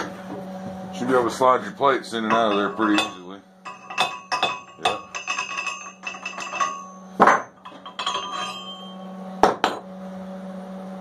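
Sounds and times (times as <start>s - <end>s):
steady low hum: 0.0s - 9.6s
steel plates clinking on metal frame: 2.2s - 9.1s.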